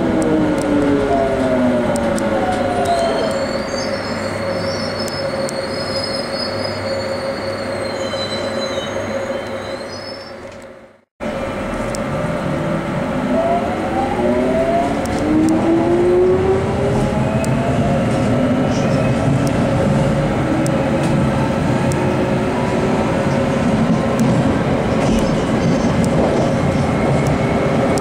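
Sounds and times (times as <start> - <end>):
train running noise: 0.0 - 28.0
wheel squeal: 2.5 - 10.4.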